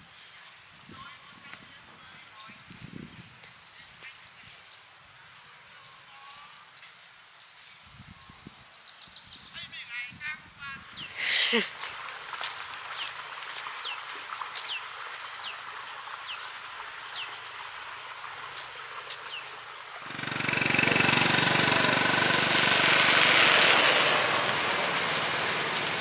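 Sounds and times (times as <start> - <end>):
car engine running: 20.0 - 26.0.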